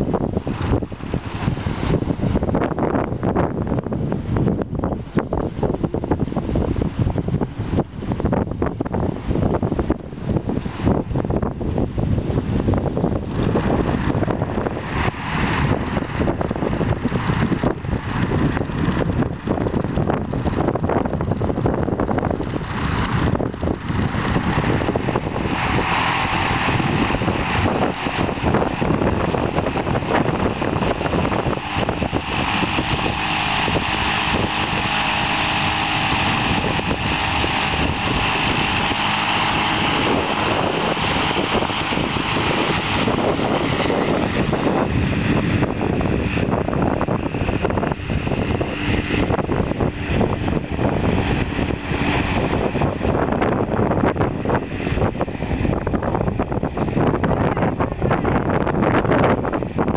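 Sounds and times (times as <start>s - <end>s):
small petrol motor whining: 0.0s - 59.9s
wind on microphone: 0.0s - 59.9s.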